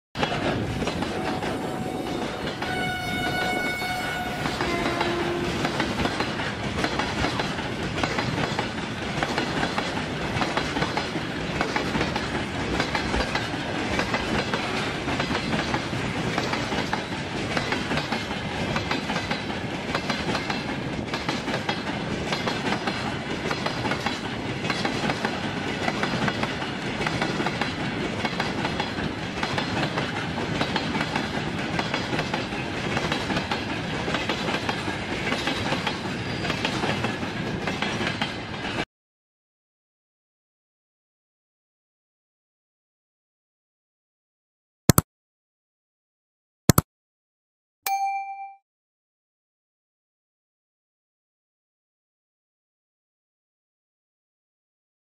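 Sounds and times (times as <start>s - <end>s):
freight train rumble and clatter: 0.2s - 38.8s
high-pitched train horn: 0.6s - 5.9s.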